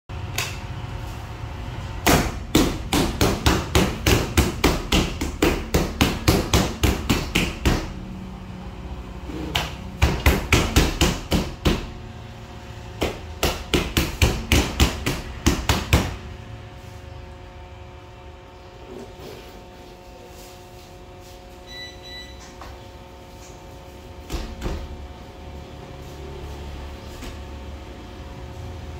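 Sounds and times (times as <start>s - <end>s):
dough knocking on metal table: 2.0s - 8.0s, 9.5s - 12.0s, 13.0s - 16.2s.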